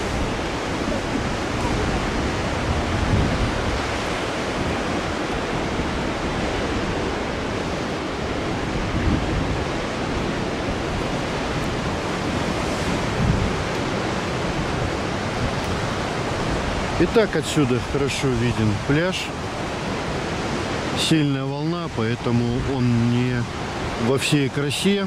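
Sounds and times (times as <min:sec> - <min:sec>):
wind on microphone: 0:00.0 - 0:18.0
surf breaking on rocks: 0:00.0 - 0:25.0.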